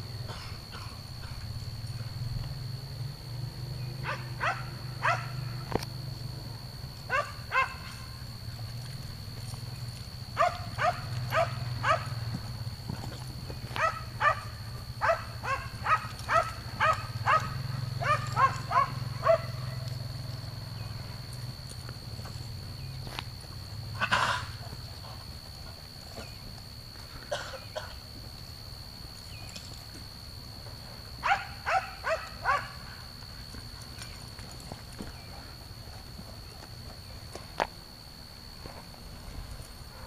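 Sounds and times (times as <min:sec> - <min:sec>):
steady low hum: 0:00.0 - 0:40.0
dog barking: 0:04.0 - 0:05.5, 0:07.1 - 0:07.9, 0:10.4 - 0:12.2, 0:13.8 - 0:19.8, 0:31.2 - 0:32.8.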